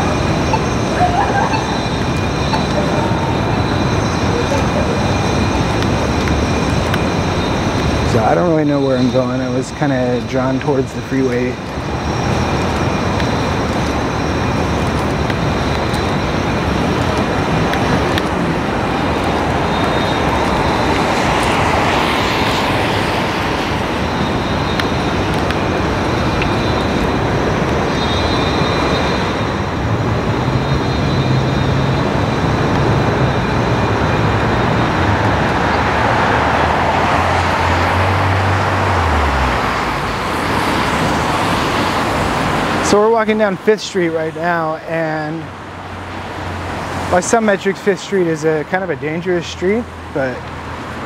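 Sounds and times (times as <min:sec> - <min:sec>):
city traffic noise: 0:00.0 - 0:51.0
passing vehicle engine: 0:28.5 - 0:42.9.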